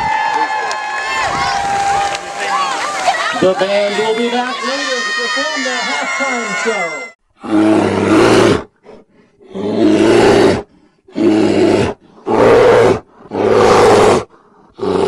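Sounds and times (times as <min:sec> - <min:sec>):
large animal roaring: 0:07.4 - 0:08.7, 0:09.4 - 0:15.0.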